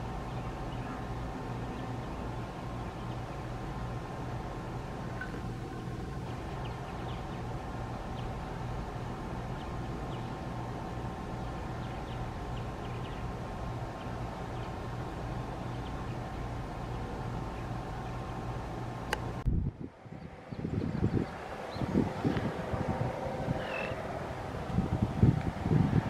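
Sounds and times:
faint constant tone: 0.0s - 26.0s
low mechanical hum: 0.0s - 26.0s
bird chirps: 23.6s - 24.0s.

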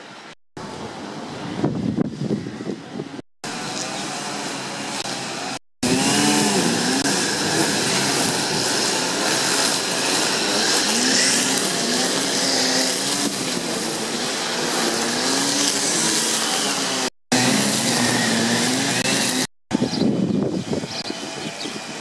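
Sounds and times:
steady noisy wash: 0.0s - 22.0s
construction machinery engine under load: 3.5s - 20.0s.

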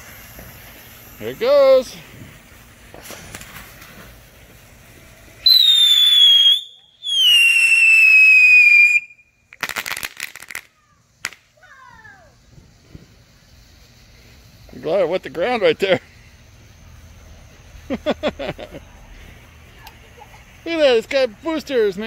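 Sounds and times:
fuse hissing: 0.0s - 9.6s, 10.7s - 22.0s
firework crackling pops: 0.0s - 15.5s
firework whistles: 0.0s - 18.0s.

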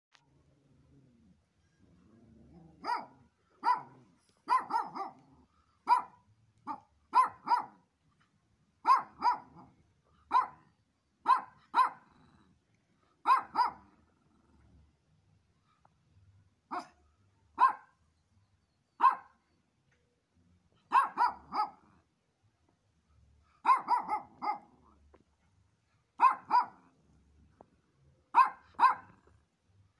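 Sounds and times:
small dog barking: 2.5s - 7.9s, 8.8s - 12.4s, 13.2s - 14.0s, 16.7s - 18.0s, 19.0s - 19.4s, 20.8s - 22.0s, 23.5s - 25.0s, 26.2s - 27.0s, 28.3s - 29.4s.

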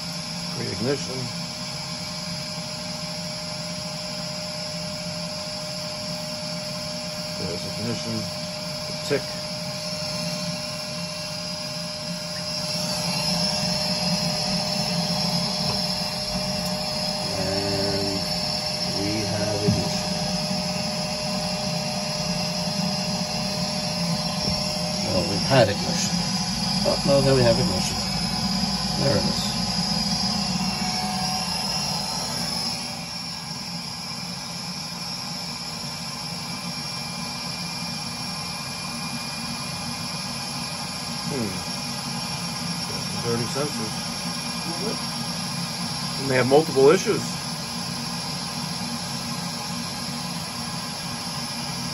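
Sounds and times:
boiler blower humming and hissing: 0.0s - 51.9s
boiler blower whoosh: 8.9s - 32.9s.

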